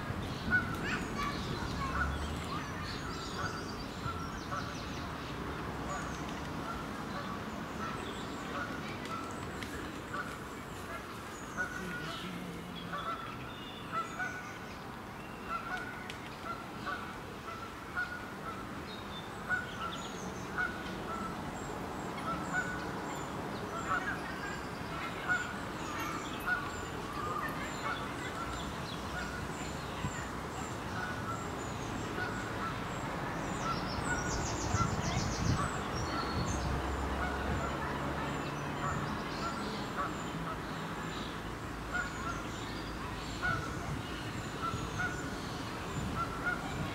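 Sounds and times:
geese honking: 0:11.6 - 0:13.3, 0:46.2 - 0:46.9.

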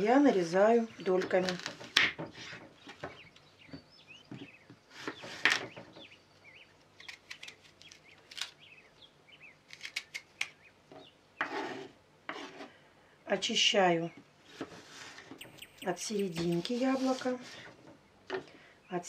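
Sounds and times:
knife cutting crisp apple: 0:09.7 - 0:10.6.

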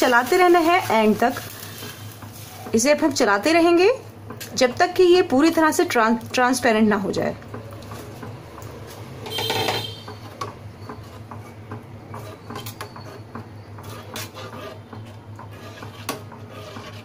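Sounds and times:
spoon scraping metal pan: 0:13.8 - 0:17.0.

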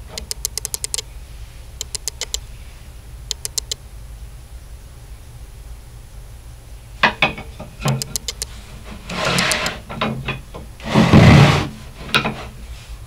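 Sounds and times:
wood strips scraping across saw: 0:08.8 - 0:09.8, 0:10.8 - 0:12.6.

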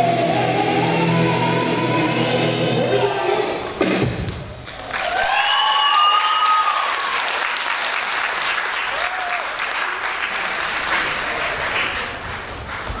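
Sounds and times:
audience applauding: 0:04.6 - 0:13.0.

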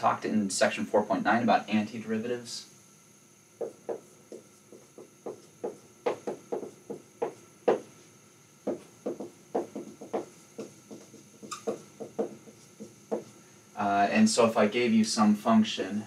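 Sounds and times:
marker tapping on whiteboard: 0:03.6 - 0:07.9, 0:08.6 - 0:13.3.

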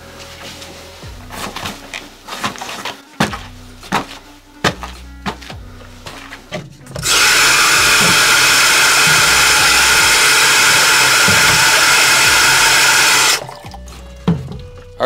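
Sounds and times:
faucet running into a plastic jar: 0:07.0 - 0:13.8.

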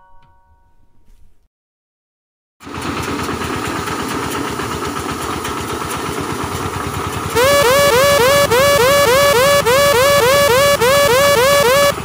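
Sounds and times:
tractor engine chugging: 0:02.6 - 0:12.0
sprayer blower whine: 0:07.3 - 0:12.0
electronic chirping music: 0:07.4 - 0:12.0.

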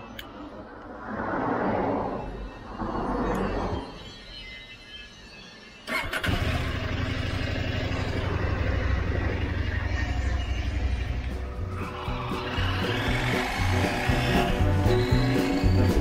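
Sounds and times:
motorcycle electric starter: 0:05.9 - 0:16.0
motorcycle engine idling: 0:05.9 - 0:16.0.

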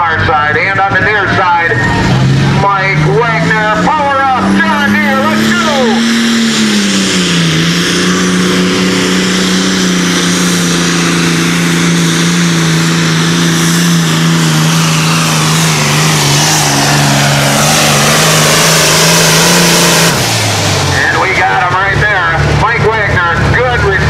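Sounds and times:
diesel tractor engine at full throttle: 0:00.0 - 0:24.0
high whine: 0:00.0 - 0:24.0.

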